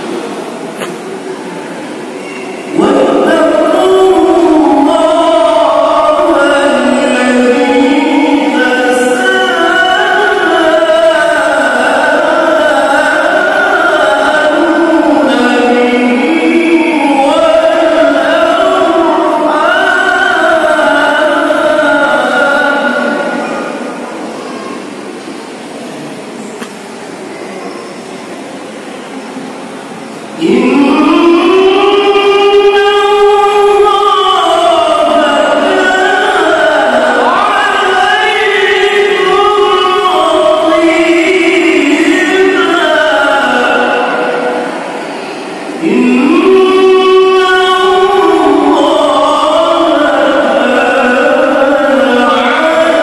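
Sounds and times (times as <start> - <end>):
man chanting melodically: 2.2 - 24.9, 30.3 - 53.0.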